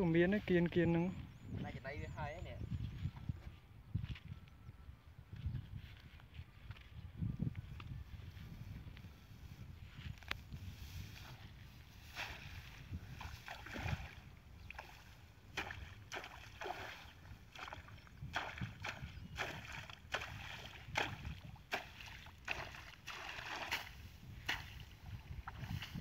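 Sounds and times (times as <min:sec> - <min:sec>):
water splashing and sloshing: 0:12.0 - 0:26.0.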